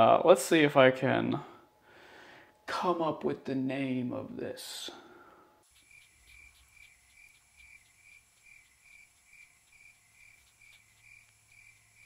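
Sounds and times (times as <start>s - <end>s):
crickets chirping: 5.6s - 12.0s.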